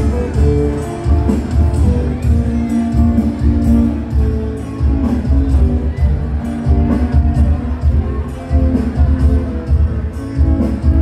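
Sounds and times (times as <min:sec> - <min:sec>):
music over sound system: 0:00.0 - 0:11.0.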